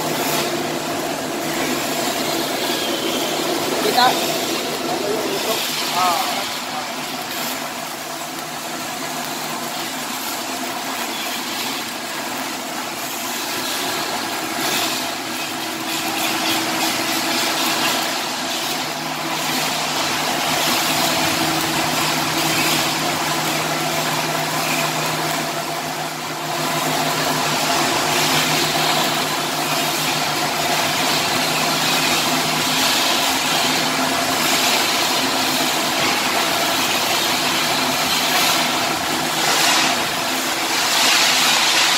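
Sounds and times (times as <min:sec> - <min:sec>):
welding arc crackling: 0:00.0 - 0:41.9.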